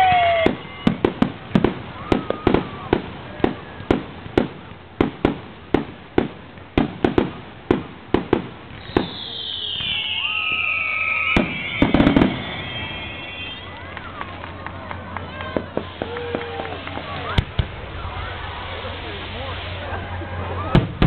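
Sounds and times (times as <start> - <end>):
firework bangs: 0.0 - 21.0
firework whistle falling in pitch: 8.7 - 13.9.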